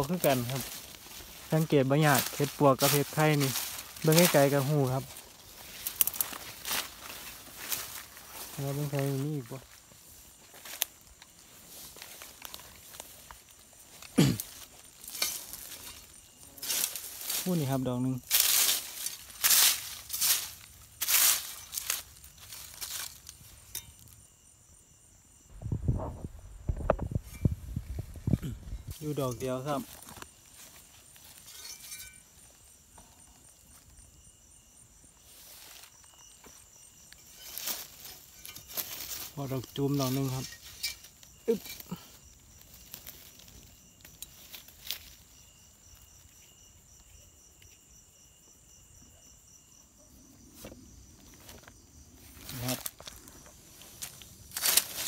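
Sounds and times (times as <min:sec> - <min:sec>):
rustling leaves and undergrowth: 0:00.0 - 0:49.5, 0:50.2 - 0:55.0
crickets trilling: 0:00.0 - 0:55.0
lower steady insect tone: 0:00.0 - 0:55.0
low thuds: 0:25.5 - 0:29.0.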